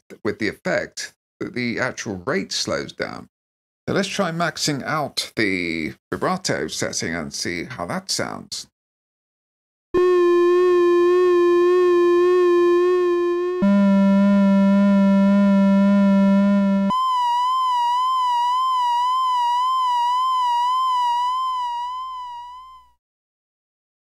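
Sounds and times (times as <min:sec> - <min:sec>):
synthesizer flute tone with vibrato: 0:10.0 - 0:23.0.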